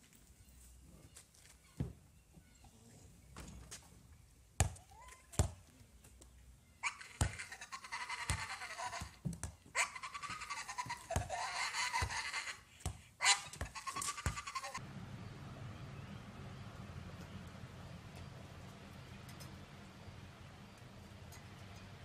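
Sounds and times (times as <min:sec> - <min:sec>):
dog giving high-pitched cries: 0:06.8 - 0:09.2, 0:09.8 - 0:12.6, 0:13.2 - 0:14.8
low steady hum: 0:14.8 - 0:22.0.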